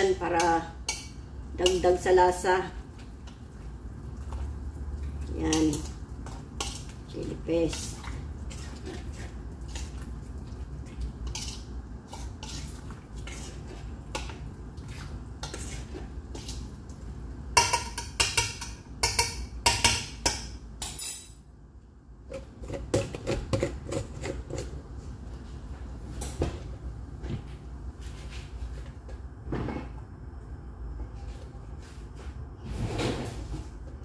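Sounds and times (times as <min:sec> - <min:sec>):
steady low hum: 0:00.0 - 0:34.0
metal spoon stirring in pot: 0:05.2 - 0:10.1, 0:10.8 - 0:16.6.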